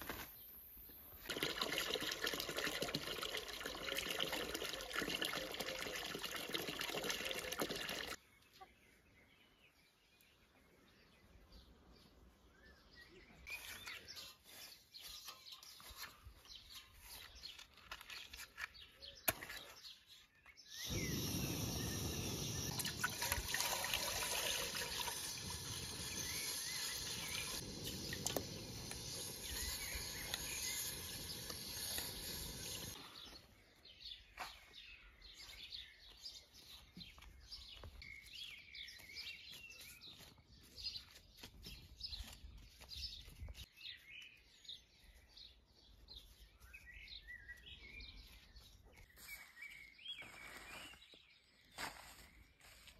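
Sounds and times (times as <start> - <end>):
water pouring into pot: 1.2 - 8.2, 20.8 - 33.0
birds chirping: 8.0 - 52.6.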